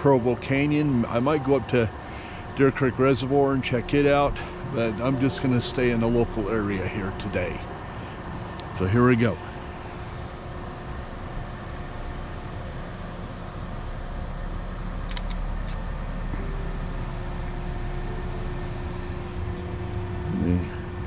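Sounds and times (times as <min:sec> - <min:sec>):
motor vehicle rumbling: 0:00.0 - 0:21.0
camera shutter clicks: 0:15.1 - 0:15.9.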